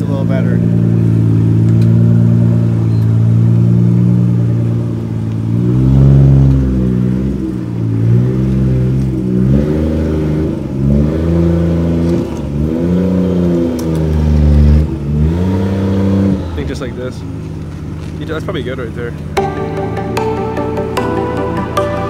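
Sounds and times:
car engine idling: 0.0s - 9.4s
car engine revving: 0.0s - 18.0s.

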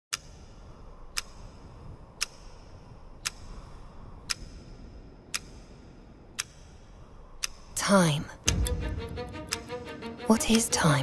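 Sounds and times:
clock ticking: 0.1s - 11.0s
low wind rumble: 0.4s - 11.0s.

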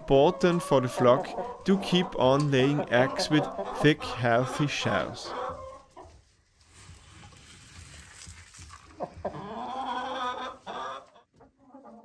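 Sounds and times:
chickens clucking: 0.0s - 6.3s, 8.8s - 12.0s
chicken drawn-out call: 8.9s - 12.0s.

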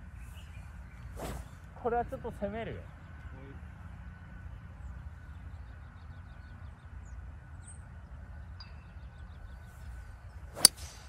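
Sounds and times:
golf club striking ball: 10.5s - 11.0s.

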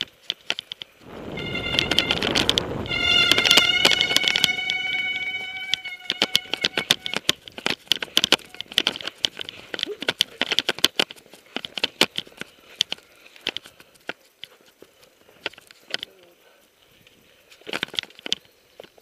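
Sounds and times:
mountain bike rattling on dirt trail: 0.0s - 16.2s
high whine: 1.0s - 7.3s.

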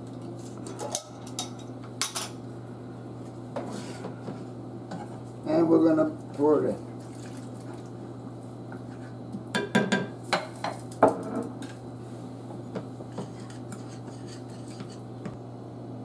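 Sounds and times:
spoon stirring sauce: 13.1s - 15.0s.

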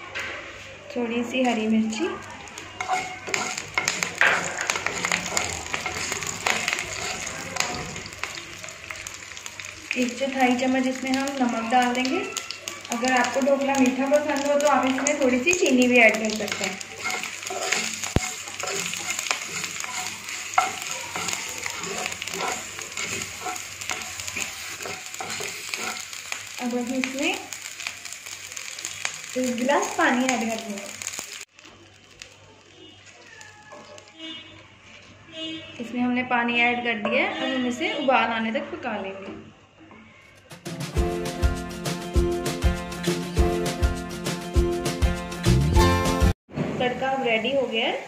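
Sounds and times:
food sizzling in hot oil: 1.2s - 34.2s
crackles and pops of oil: 2.4s - 33.2s
wooden spatula scraping pan: 2.7s - 8.4s, 16.2s - 26.2s.

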